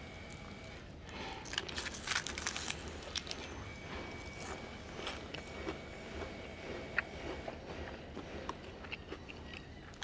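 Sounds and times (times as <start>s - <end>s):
paper and plastic crinkling: 1.1s - 5.2s.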